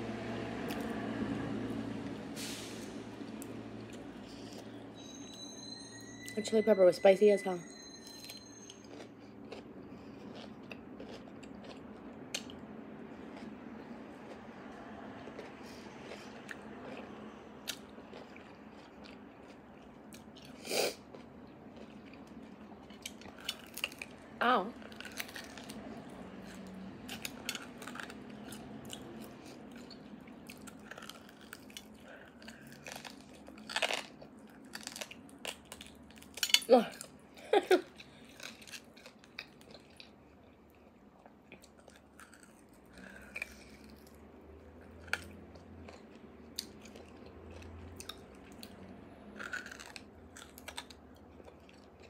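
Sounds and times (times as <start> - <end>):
sucking and slurping: 2.3 - 4.8
chewing mouth sounds: 8.8 - 24.2, 37.8 - 52.0.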